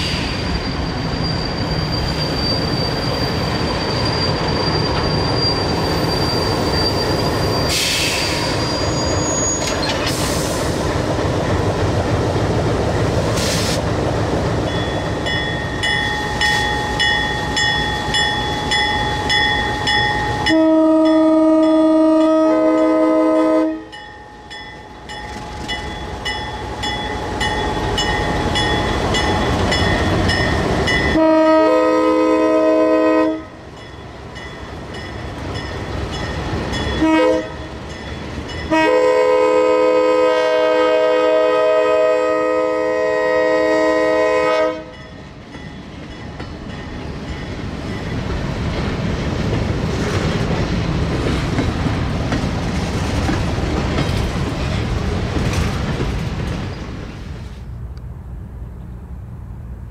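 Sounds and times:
diesel locomotive running: 0.0s - 59.9s
locomotive bell ringing: 14.6s - 23.0s, 23.8s - 31.4s, 33.7s - 38.9s, 44.9s - 48.3s
multi-tone train horn blasts: 20.3s - 24.0s, 31.1s - 33.6s, 37.0s - 37.7s, 38.7s - 45.0s.

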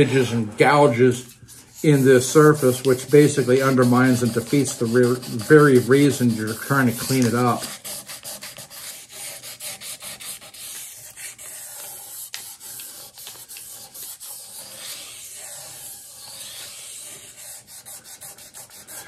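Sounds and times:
sandpaper rubbing on metal: 0.0s - 19.0s.

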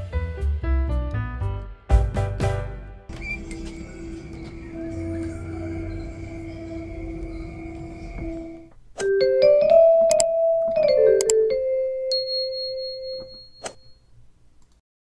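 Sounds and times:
background music: 0.0s - 13.8s
electric piano jingle: 3.1s - 13.6s
high bell-like ding: 12.1s - 14.1s.

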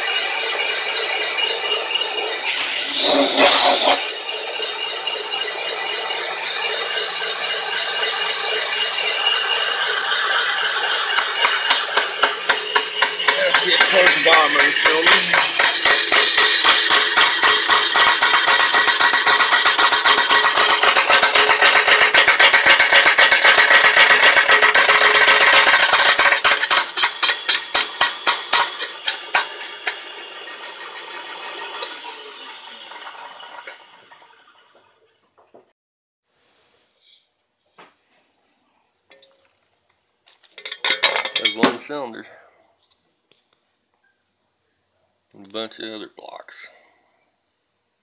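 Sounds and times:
boring bar cutting metal: 0.0s - 34.6s.

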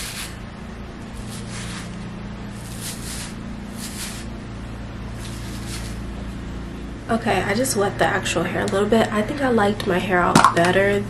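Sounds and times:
comb swishing through damp hair: 0.0s - 0.4s, 1.1s - 4.3s, 5.1s - 6.1s
steady low hum: 0.0s - 11.0s.

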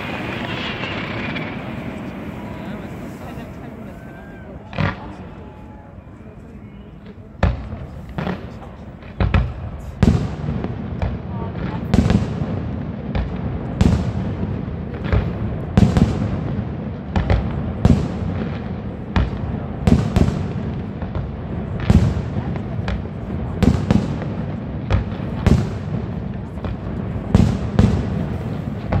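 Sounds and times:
fireworks shells bursting: 0.0s - 3.7s
steady low rumble: 0.0s - 4.3s.

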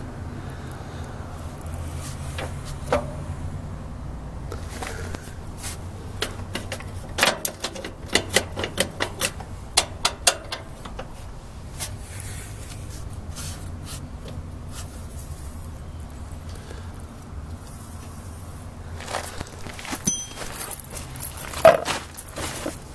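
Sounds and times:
metal clicks and clinks: 6.2s - 11.1s, 20.0s - 22.8s.

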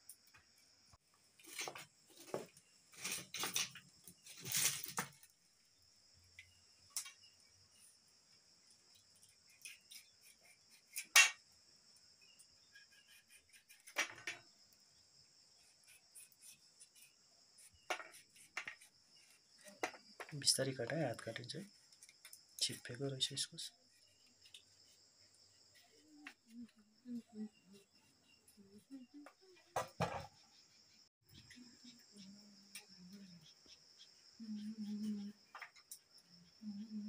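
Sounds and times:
crickets chirping: 0.0s - 37.0s
knife scraping squash: 12.7s - 14.0s.

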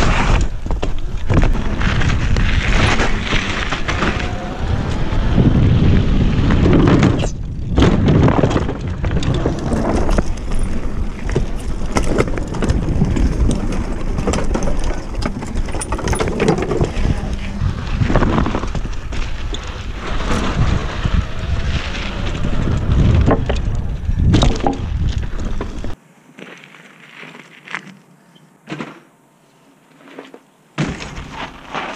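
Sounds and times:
wind rumble on microphone: 0.0s - 26.0s
bike frame rattling and knocking: 8.0s - 17.4s.

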